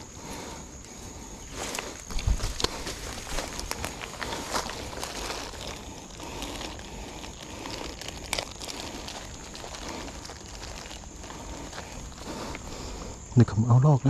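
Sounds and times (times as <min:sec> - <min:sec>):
plastic bag crinkling: 0:01.7 - 0:12.7.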